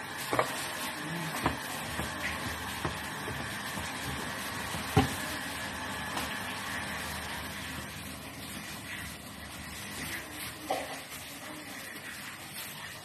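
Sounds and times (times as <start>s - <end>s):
thump on cutting board: 1.4s - 5.2s.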